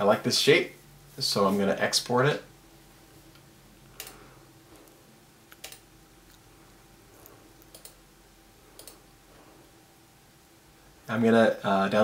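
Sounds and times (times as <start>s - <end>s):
low steady hum: 0.0s - 12.0s
computer mouse clicks: 4.0s - 4.2s, 4.8s - 6.4s, 7.2s - 8.0s, 8.8s - 9.0s.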